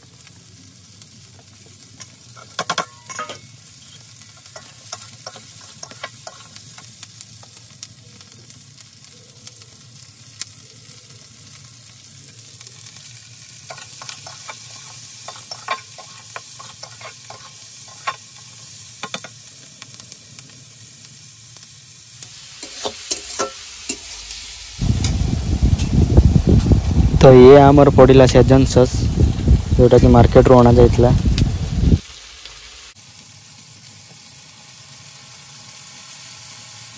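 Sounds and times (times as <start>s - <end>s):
vegetables sizzling in oil: 0.0s - 36.9s
metal spatula scraping pan: 2.4s - 6.6s, 13.7s - 18.2s, 22.6s - 24.2s
low rumble: 24.6s - 32.0s.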